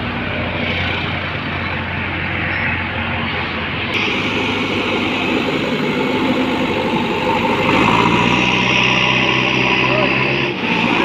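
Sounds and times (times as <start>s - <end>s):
diesel engine under load: 0.0s - 11.0s
loader bucket pushing soil: 4.0s - 11.0s.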